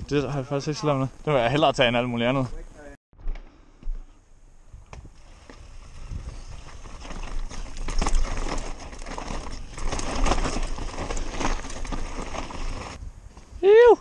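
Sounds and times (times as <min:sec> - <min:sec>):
low wind rumble on microphone: 0:04.5 - 0:14.0
tyres crunching over gravel: 0:05.3 - 0:13.0
bike rattling and clicking: 0:05.5 - 0:13.0.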